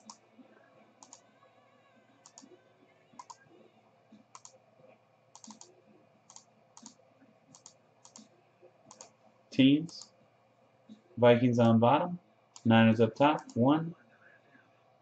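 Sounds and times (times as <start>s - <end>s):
computer mouse clicks: 0.0s - 0.2s, 1.0s - 1.3s, 2.2s - 2.6s, 3.2s - 3.4s, 4.1s - 4.6s, 5.3s - 5.7s, 6.3s - 9.2s.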